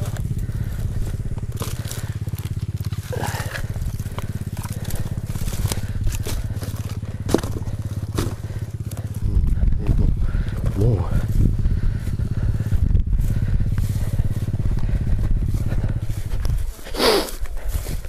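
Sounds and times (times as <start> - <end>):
twigs snapping: 0.0 - 9.1
boots crunching through dry grass: 0.0 - 18.0
dirt bike engine idling: 0.0 - 18.0.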